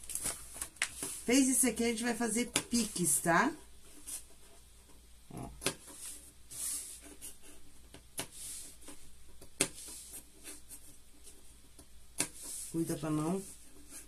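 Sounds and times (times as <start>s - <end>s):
fabric rustling: 0.0s - 1.5s.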